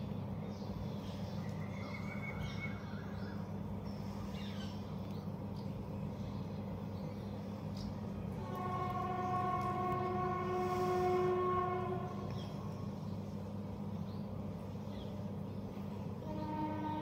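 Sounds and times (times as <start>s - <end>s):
steady low hum: 0.0s - 17.0s
horn long steady note: 8.3s - 12.7s, 16.2s - 17.0s.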